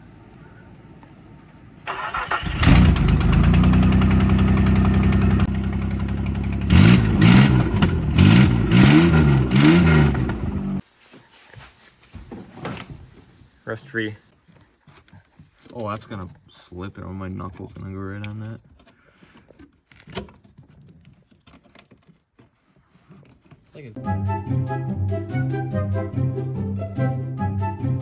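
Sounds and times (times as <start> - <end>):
starter cranking engine: 1.9 - 10.6
truck engine running and revving: 2.5 - 10.8.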